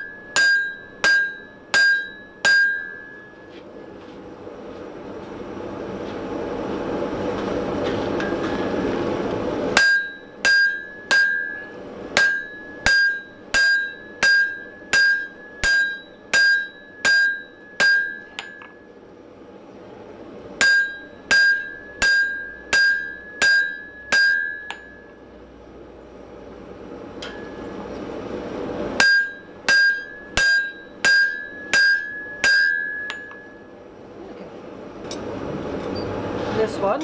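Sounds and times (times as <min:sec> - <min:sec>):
anvil ringing ping: 0:00.0 - 0:03.5, 0:09.8 - 0:18.9, 0:20.6 - 0:25.3, 0:27.2 - 0:27.8, 0:29.0 - 0:33.7
hammer striking steel on anvil: 0:00.0 - 0:03.6, 0:09.8 - 0:18.9, 0:20.6 - 0:25.2, 0:27.2 - 0:27.8, 0:29.0 - 0:33.7.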